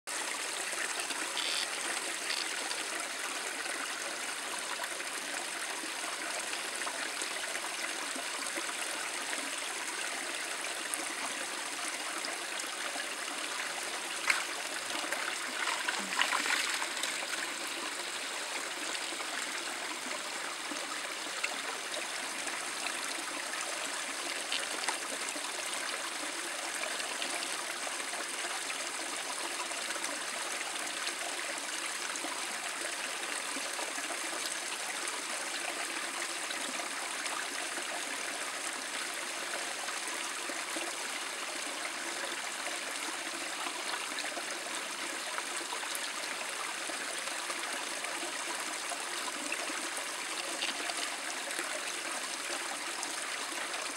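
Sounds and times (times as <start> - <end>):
small waterfall splashing into pool: 0.1 - 19.6, 36.6 - 53.9.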